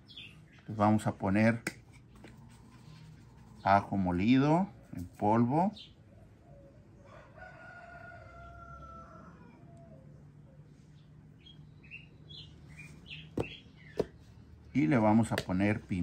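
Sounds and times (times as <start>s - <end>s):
faint rooster crowing: 6.2s - 10.9s.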